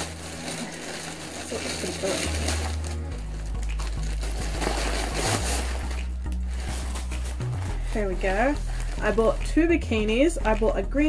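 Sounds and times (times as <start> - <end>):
plastic bag rustling and crinkling: 0.0 - 9.5
background music with bassline: 2.2 - 11.0.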